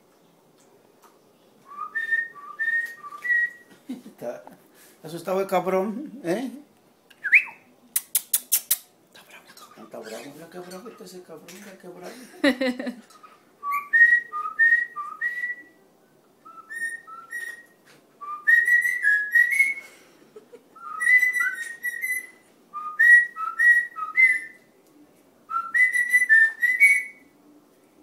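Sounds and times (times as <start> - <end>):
bird whistling: 1.7 - 3.6, 7.2 - 7.7, 13.6 - 15.7, 16.4 - 19.8, 20.8 - 24.6, 25.5 - 27.2
man whistling: 1.7 - 3.6, 7.2 - 7.6, 13.6 - 15.7, 16.5 - 19.8, 20.8 - 24.5, 25.5 - 27.2.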